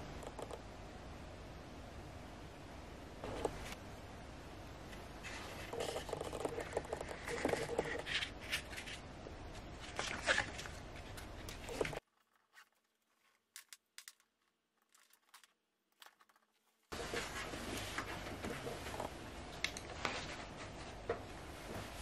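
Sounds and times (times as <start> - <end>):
booklet pages rustling: 5.2 - 19.0.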